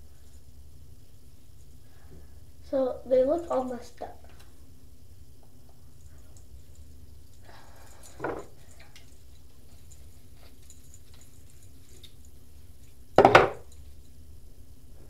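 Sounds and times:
soft rustle: 8.0 - 13.1.

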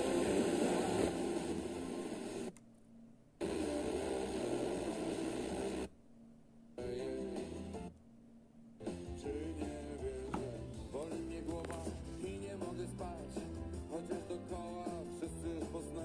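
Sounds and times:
static-laden radio audio: 0.0 - 2.5, 3.4 - 5.9.

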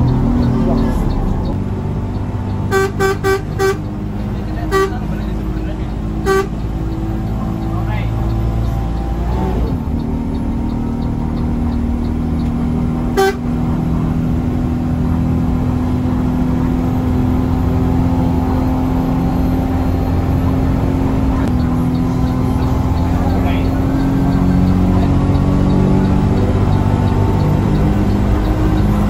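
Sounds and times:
bus engine running: 0.0 - 29.0
horn toot: 2.7 - 3.9, 4.6 - 5.1, 6.2 - 6.6, 13.1 - 13.6.

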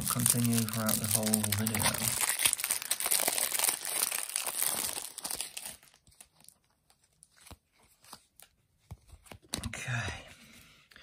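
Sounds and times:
foil wrapper crinkling: 0.0 - 8.2.

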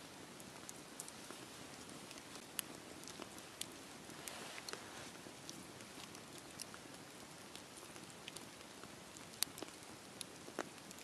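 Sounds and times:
campfire hissing: 0.0 - 11.0
crackles and pops from logs: 0.0 - 11.0.

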